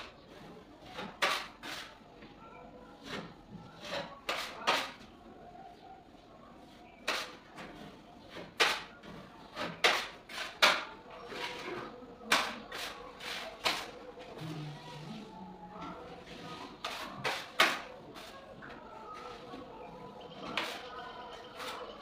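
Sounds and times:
putty knife scraping and knocking: 0.9 - 1.9, 3.0 - 5.0, 7.0 - 14.0, 16.4 - 18.3.

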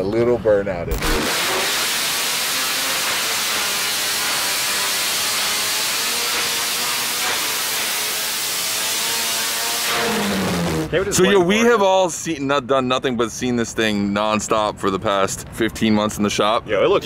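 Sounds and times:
steady loud hiss: 0.9 - 6.2.

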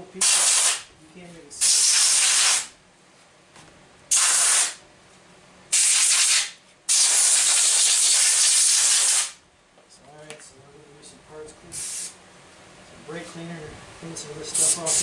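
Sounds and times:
aerosol spray hissing: 5.8 - 9.4, 14.6 - 15.0.

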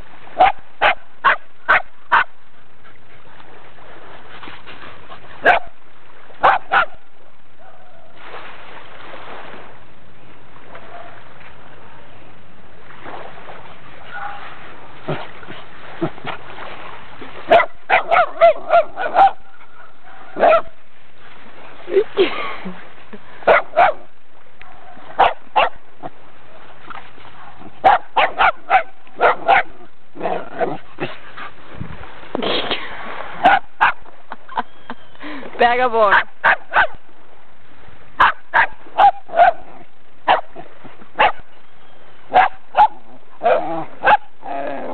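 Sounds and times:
small dog barking and yipping: 0.4 - 2.3, 5.4 - 5.7, 6.4 - 7.0, 17.5 - 19.4, 20.4 - 20.7, 23.5 - 24.0, 25.2 - 25.8, 27.8 - 29.8, 33.4 - 34.0, 36.1 - 37.0, 38.2 - 39.7, 41.2 - 41.4, 42.3 - 44.3.

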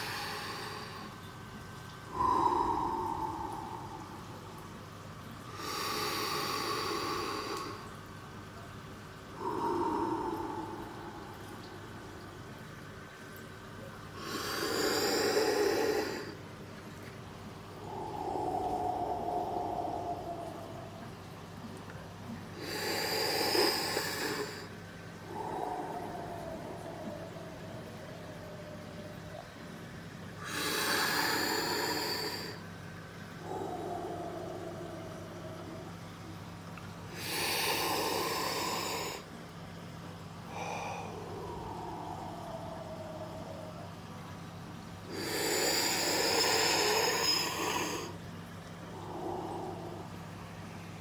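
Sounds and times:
person breathing heavily: 0.0 - 1.1, 2.1 - 4.6, 9.4 - 11.9, 14.2 - 16.4, 40.5 - 43.8
person breathing in heavily: 0.0 - 1.1, 2.1 - 4.7, 9.4 - 11.9, 17.8 - 21.1
low hum: 0.0 - 22.6, 23.8 - 31.7, 32.3 - 37.2, 38.4 - 45.1, 46.1 - 51.0
steady low hiss: 0.0 - 51.0.

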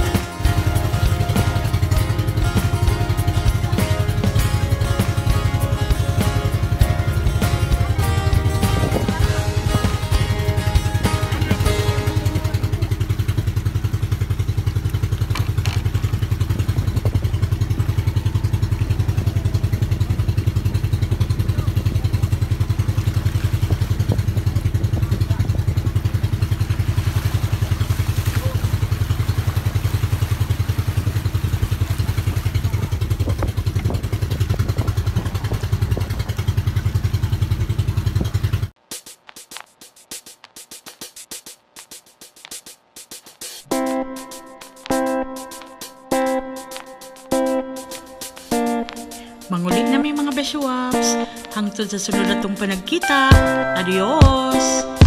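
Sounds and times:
boat engine putter: 0.0 - 38.8.

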